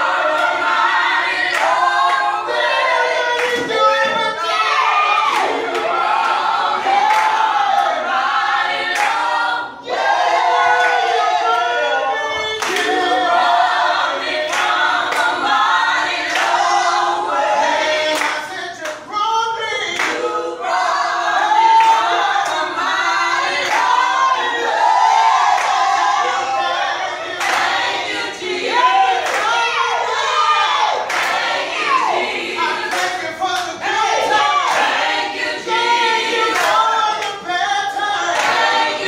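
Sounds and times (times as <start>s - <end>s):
group singing a cappella: 0.0s - 39.0s
hand claps: 3.4s - 4.2s, 9.0s - 9.2s, 12.6s - 13.0s, 14.5s - 15.3s, 18.2s - 19.0s, 20.0s - 20.2s, 29.2s - 29.5s, 31.1s - 31.5s, 32.9s - 33.7s, 36.5s - 37.4s, 38.4s - 38.8s.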